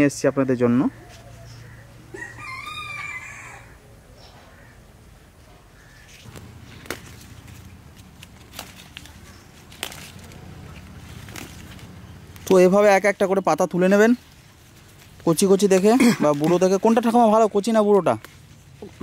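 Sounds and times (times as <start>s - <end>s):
rooster crowing: 1.3s - 4.8s
leaves clicking when handled: 6.1s - 19.0s.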